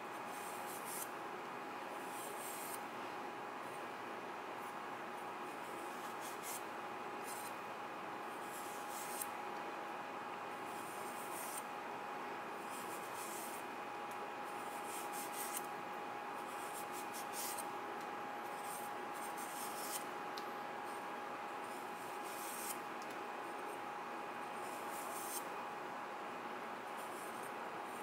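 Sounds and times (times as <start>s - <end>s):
knife scraping radish: 0.4s - 1.1s, 8.5s - 9.2s, 18.6s - 20.0s, 22.2s - 22.8s.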